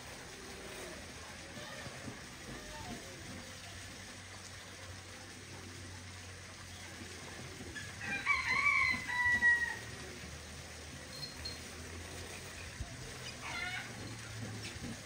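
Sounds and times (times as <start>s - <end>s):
rooster crowing: 8.0s - 9.9s.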